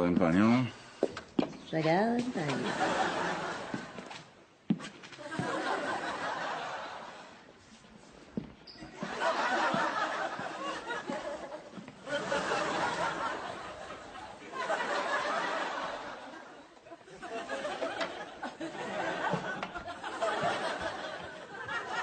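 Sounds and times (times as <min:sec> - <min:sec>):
audience laughing: 0:02.4 - 0:04.2, 0:05.2 - 0:07.4, 0:08.9 - 0:22.0.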